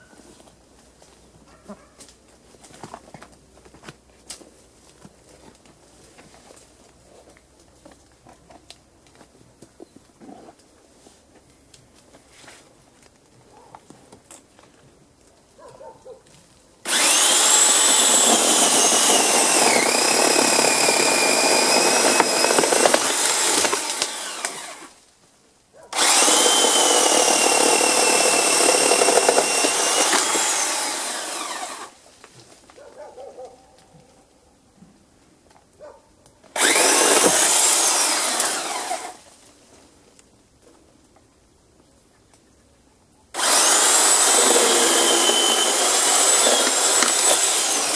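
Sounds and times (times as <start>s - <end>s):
electric chainsaw cutting wood: 16.8s - 25.0s, 25.9s - 32.0s, 36.5s - 39.3s, 43.4s - 47.9s.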